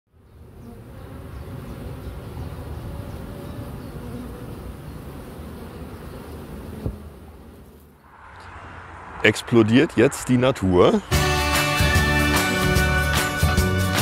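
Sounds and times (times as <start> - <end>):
bees buzzing: 0.2 - 8.0.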